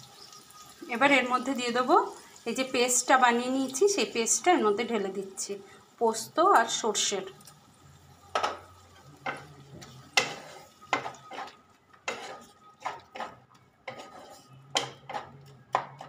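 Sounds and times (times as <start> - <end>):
spatula scraping frying pan: 8.3 - 16.0.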